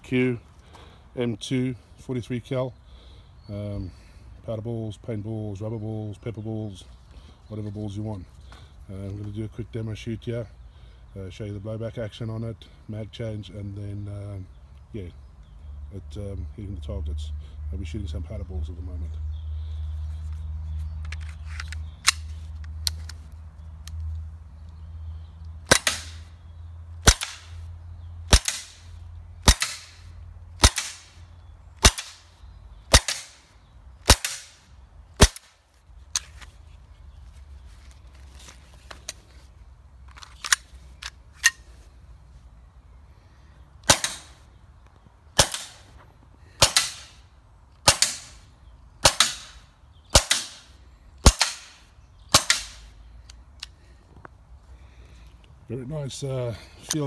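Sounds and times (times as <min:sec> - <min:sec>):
air pistol shots: 0:25.7 - 0:26.3, 0:27.0 - 0:27.6, 0:28.3 - 0:31.2, 0:31.8 - 0:32.3, 0:32.9 - 0:34.6, 0:35.2 - 0:35.6, 0:43.8 - 0:44.4, 0:45.4 - 0:45.9, 0:46.6 - 0:47.2, 0:47.8 - 0:48.4, 0:49.0 - 0:52.9.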